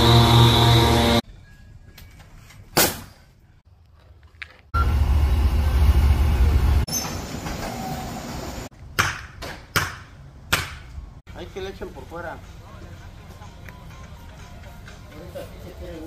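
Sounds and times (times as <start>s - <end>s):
sharp crack: 2.8s - 3.2s
wheel loader diesel engine rumble: 4.8s - 6.9s.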